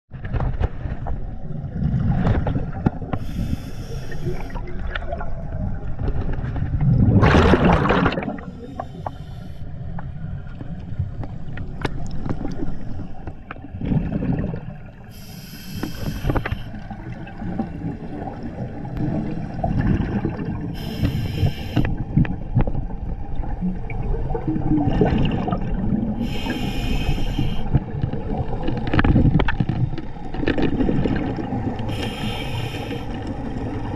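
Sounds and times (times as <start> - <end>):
low underwater rumble: 0.2 - 33.9
regulator hiss on inhale: 3.2 - 4.7, 8.6 - 9.8, 15.1 - 16.8, 20.8 - 22.0, 26.2 - 27.8, 31.9 - 33.3
rush of bubbles: 4.0 - 8.9, 13.7 - 15.0, 16.8 - 21.5, 23.4 - 26.5, 30.5 - 32.4.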